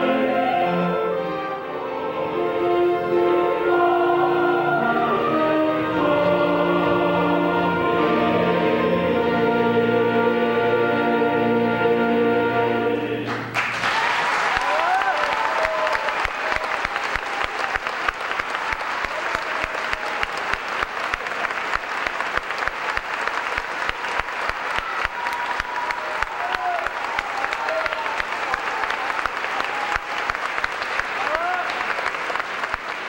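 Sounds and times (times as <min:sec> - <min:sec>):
choir and orchestra chord: 0:00.0 - 0:13.6
audience applause: 0:13.3 - 0:33.0.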